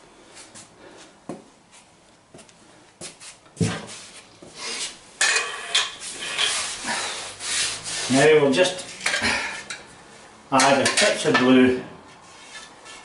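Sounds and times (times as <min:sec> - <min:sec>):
scraping: 0:03.9 - 0:09.8.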